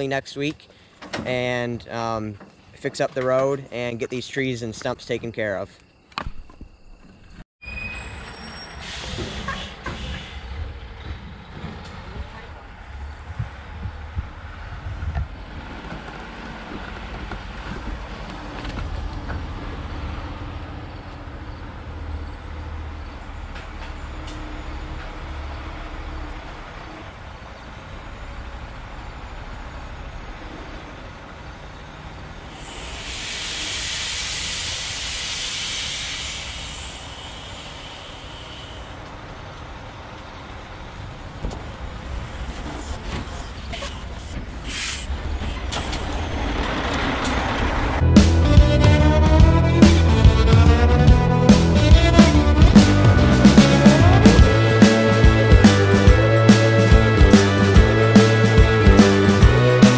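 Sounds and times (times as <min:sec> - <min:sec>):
air brake hiss: 0:08.6 - 0:10.6, 0:32.4 - 0:39.0, 0:42.8 - 0:45.6
truck diesel engine running: 0:46.0 - 0:59.9.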